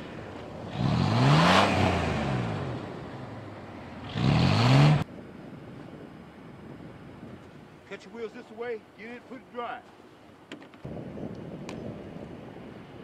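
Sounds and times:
tire spinning in snow: 0.0 - 7.7
car engine revving: 0.5 - 5.1.

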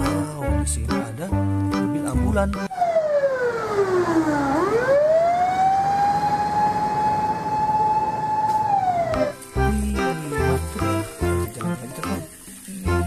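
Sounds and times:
emergency vehicle siren wailing: 2.7 - 9.4.

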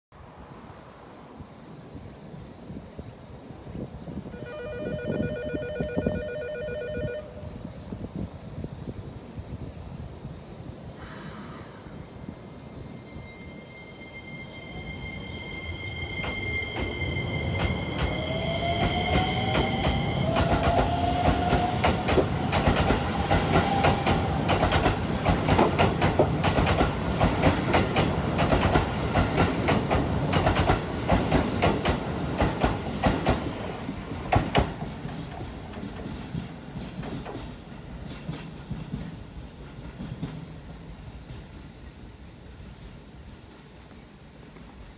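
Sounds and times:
high steady tone: 4.3 - 7.6.

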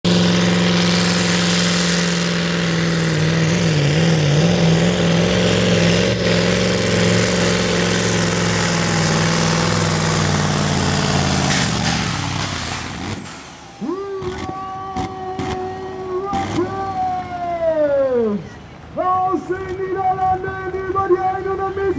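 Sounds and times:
diesel engine at high revs: 0.0 - 21.9.

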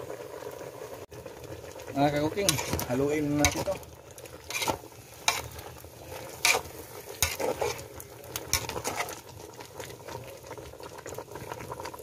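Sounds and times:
sauce bubbling at a simmer: 0.0 - 12.0
metal ladle knocking and scraping pot: 2.4 - 3.8, 4.5 - 5.6, 6.4 - 7.9, 8.5 - 9.2.

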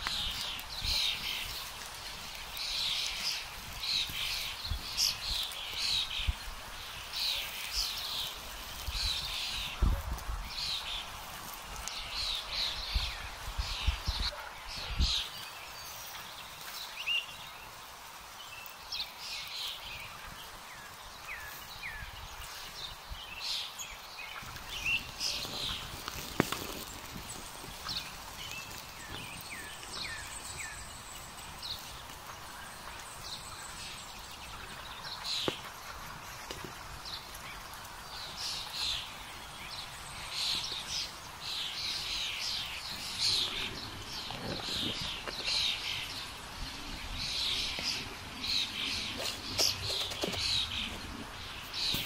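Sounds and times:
birds chirping and trilling: 0.0 - 52.0.

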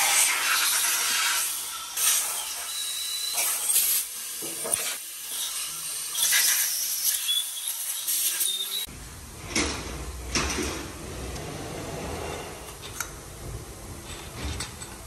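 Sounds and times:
air blow gun hissing bursts: 0.0 - 8.8.

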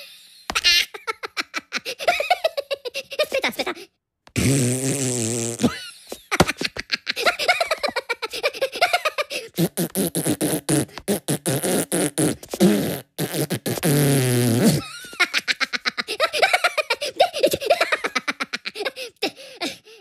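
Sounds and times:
cartoon voice blowing raspberries: 3.1 - 5.8, 8.3 - 15.0.

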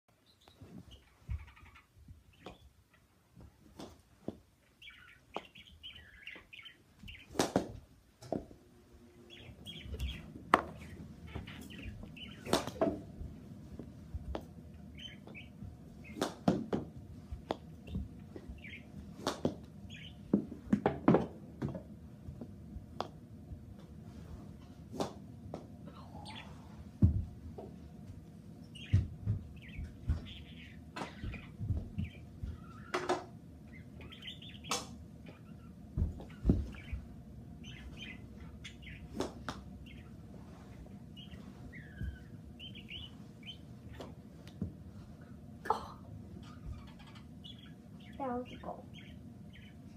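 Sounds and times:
bird chirping: 0.1 - 3.1, 4.6 - 7.4, 9.2 - 12.8, 14.8 - 16.3, 17.8 - 19.0, 19.9 - 20.3, 28.6 - 39.2, 39.8 - 40.2, 41.1 - 44.1, 46.4 - 49.9
steady low hum: 0.2 - 49.9.

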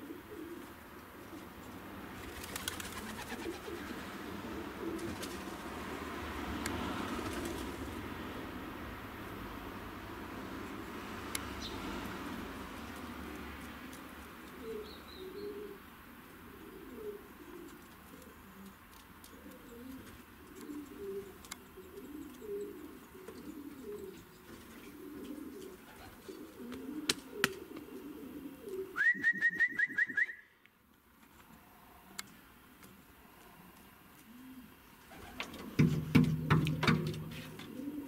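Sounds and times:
pigeon cooing: 0.0 - 1.6, 2.4 - 5.9, 14.5 - 30.3, 34.2 - 35.7, 36.4 - 38.0.

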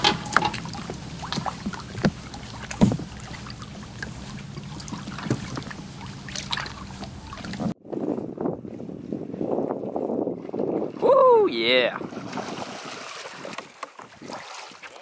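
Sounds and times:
boat motor humming: 0.0 - 7.8
light knocks and splashes: 0.0 - 7.8, 12.1 - 15.0
water lapping: 0.0 - 15.0.

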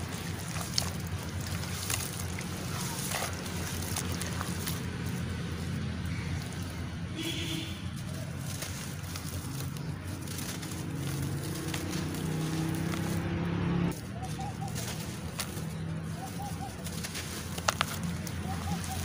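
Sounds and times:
low engine-like hum: 0.0 - 19.0
wet lumps squelching in water: 0.0 - 19.0
bird calling: 5.6 - 19.0.

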